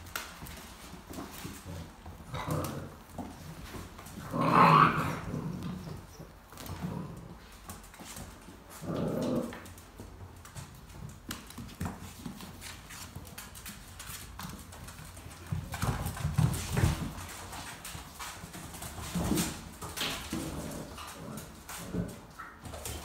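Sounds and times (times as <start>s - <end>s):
claws scrabbling on vinyl floor: 0.0s - 23.0s
puppies scuffling: 0.0s - 23.0s
puppies growling: 1.2s - 10.2s, 19.1s - 23.0s.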